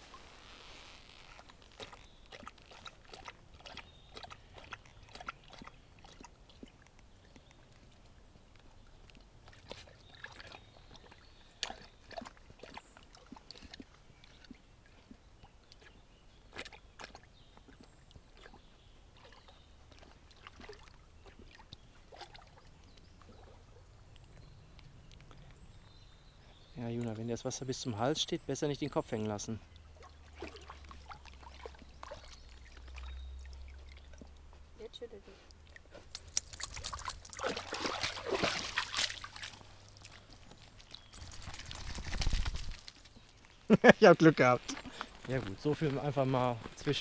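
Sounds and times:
dog splashing in water: 1.8s - 6.8s, 9.4s - 15.2s, 16.5s - 23.6s, 30.0s - 34.4s, 35.8s - 43.1s.

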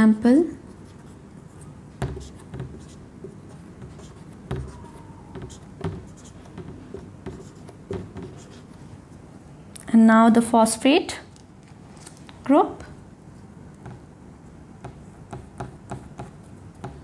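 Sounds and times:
marker writing on whiteboard: 0.7s - 9.0s, 13.8s - 14.1s, 14.8s - 17.0s.

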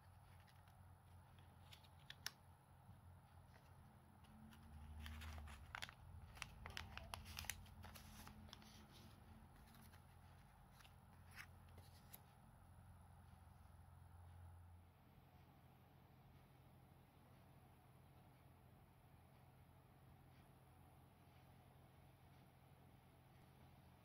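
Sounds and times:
low steady hum: 0.0s - 24.0s
paper rustling and clicking: 0.1s - 2.4s, 3.4s - 12.2s.

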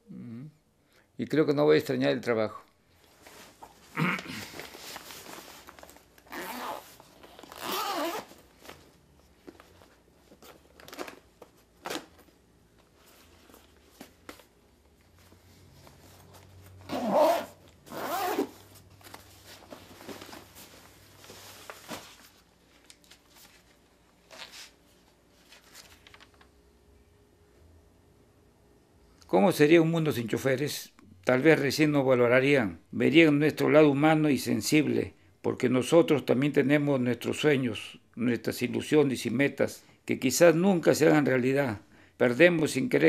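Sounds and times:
bag rustling: 3.1s - 14.5s, 15.1s - 24.8s
zipper pulled open and shut: 6.2s - 8.4s, 16.8s - 18.7s.

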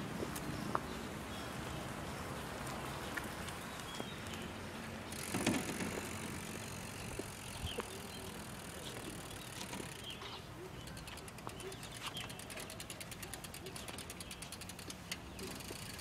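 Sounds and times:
tricycle tyres on rough concrete: 0.0s - 16.0s
freewheel ticking: 5.1s - 10.2s, 10.8s - 16.0s
frame rattles and clicks: 5.2s - 6.7s.

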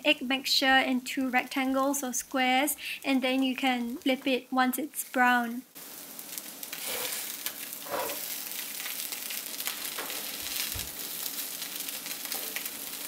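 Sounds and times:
food sizzling in a hot pan: 5.0s - 13.0s
wooden spatula scraping: 6.6s - 8.5s.

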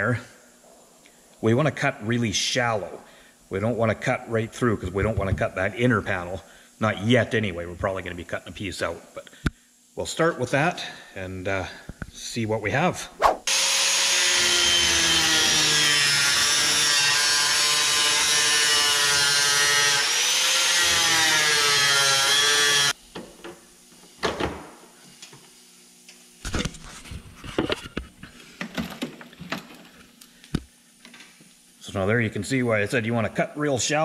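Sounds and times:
cut-off wheel cutting steel: 13.4s - 23.0s.

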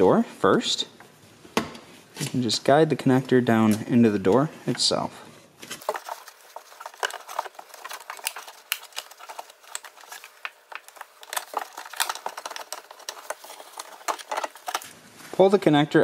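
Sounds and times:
plastic connector clicking and rattling: 6.8s - 14.8s.

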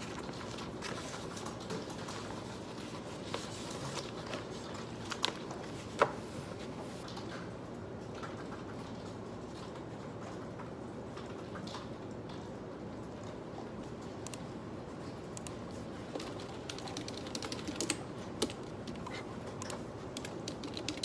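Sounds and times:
paper sheets shuffling: 0.0s - 7.1s.

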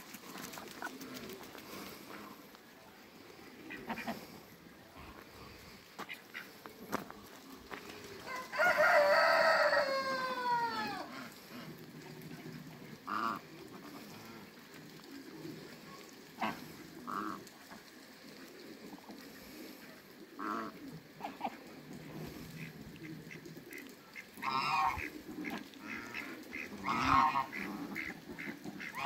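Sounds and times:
rooster crowing: 8.3s - 11.1s
waterfowl calls: 13.0s - 14.8s, 16.0s - 17.9s, 19.4s - 29.0s.

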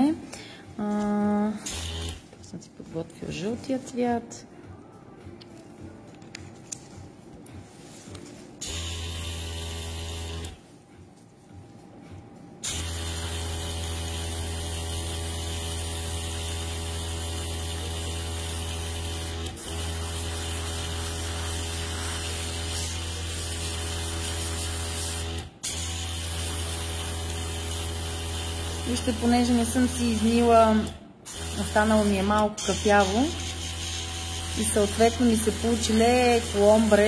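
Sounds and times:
airbrush compressor hum: 1.6s - 2.3s, 8.6s - 10.6s, 12.6s - 37.0s.

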